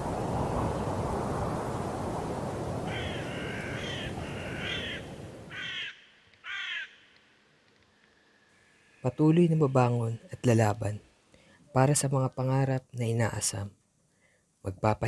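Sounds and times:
steady rushing noise: 0:00.0 - 0:05.5
crow cawing: 0:02.8 - 0:07.2.

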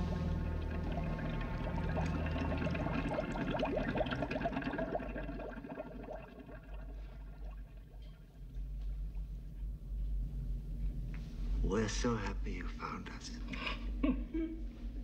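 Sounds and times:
water trickling and bubbling: 0:00.0 - 0:09.4
low steady drone: 0:00.0 - 0:12.0.

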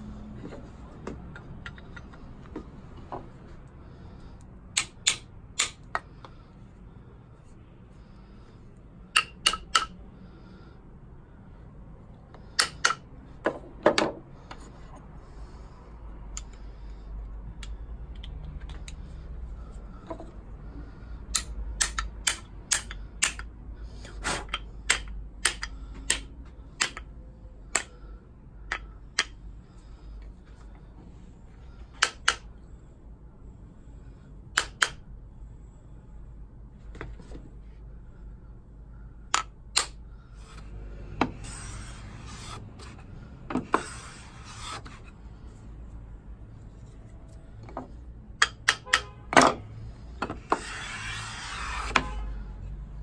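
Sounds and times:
hammer tapping wooden plane: 0:50.2 - 0:52.2.

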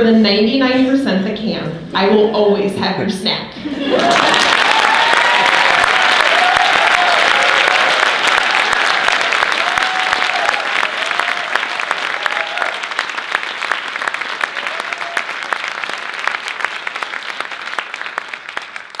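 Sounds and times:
audience applauding: 0:03.8 - 0:19.0.

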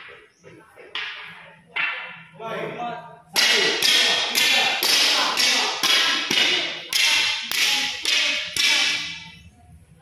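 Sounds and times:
wooden staffs striking tiled floor: 0:03.4 - 0:09.4.

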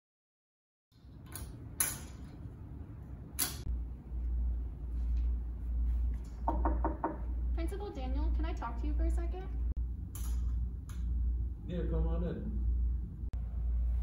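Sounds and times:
knuckles knocking on wooden door: 0:06.4 - 0:07.3.

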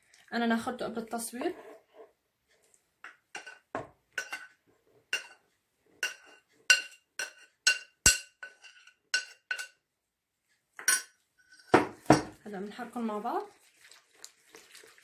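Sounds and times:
metal spoon clinking on glass bowl: 0:04.2 - 0:04.5, 0:06.0 - 0:09.8, 0:10.8 - 0:11.7.

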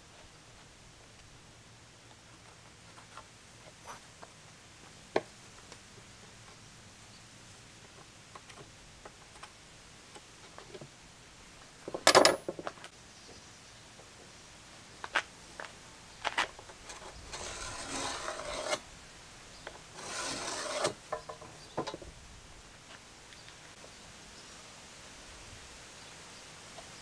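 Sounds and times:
tools clattering on wood: 0:11.8 - 0:12.9, 0:19.7 - 0:22.1
pencil scratching along metal straightedge: 0:16.9 - 0:18.8, 0:20.0 - 0:21.0.

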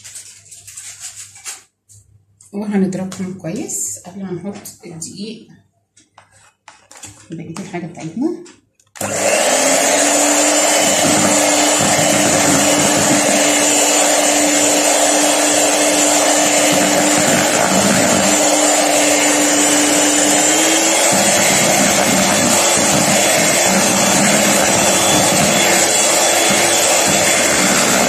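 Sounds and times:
electric hand mixer whipping batter: 0:09.0 - 0:28.0.

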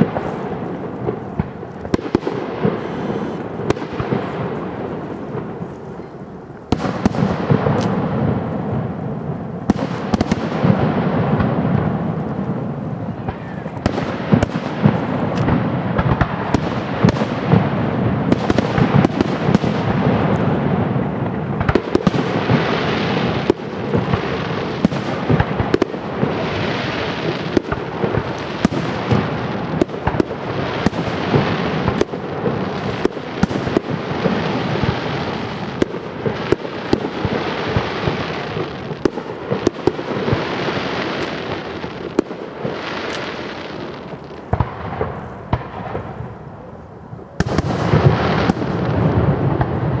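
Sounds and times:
firework shells bursting: 0:13.2 - 0:46.2.

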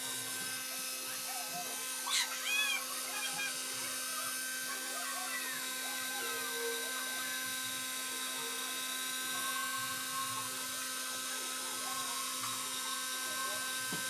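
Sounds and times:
hair dryer running: 0:00.0 - 0:14.0.

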